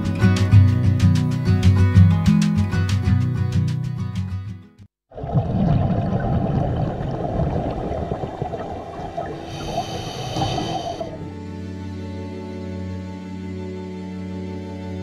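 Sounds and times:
underwater bubbles rumbling and gurgling: 5.1s - 11.3s
high hiss: 9.4s - 11.2s.

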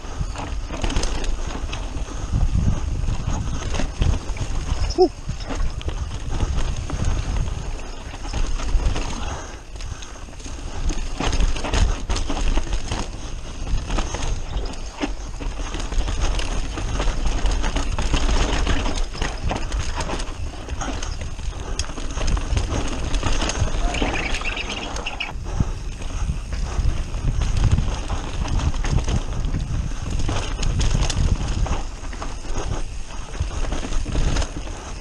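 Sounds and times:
bike rattling and knocking: 0.0s - 35.0s
wind buffeting microphone: 0.0s - 35.0s
tyres crunching over stones: 3.9s - 25.4s.

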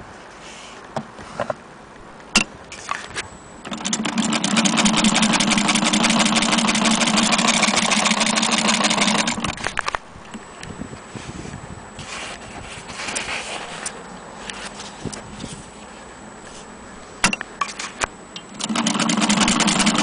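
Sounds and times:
sewing machine clatter: 3.7s - 9.6s, 18.6s - 20.0s.

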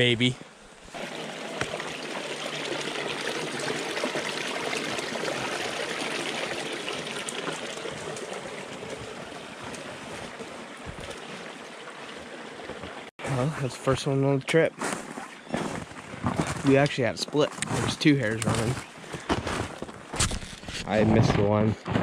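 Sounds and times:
brook trickling over rocks: 0.9s - 13.1s, 16.5s - 20.0s.

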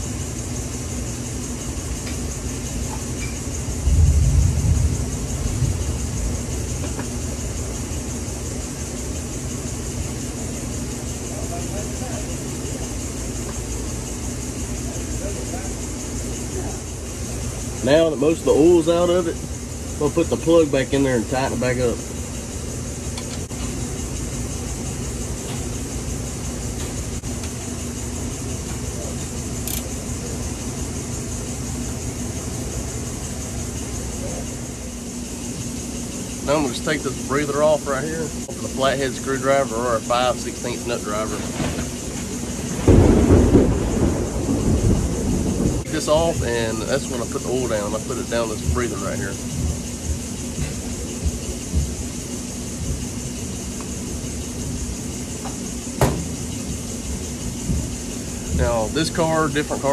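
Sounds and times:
large fan running: 0.0s - 59.9s
steady background hum: 0.0s - 59.9s
sharp click: 29.6s - 29.9s.

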